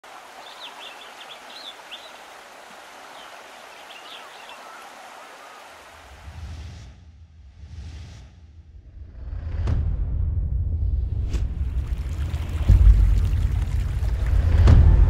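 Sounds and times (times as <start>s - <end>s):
birds chirping: 0.0s - 6.2s.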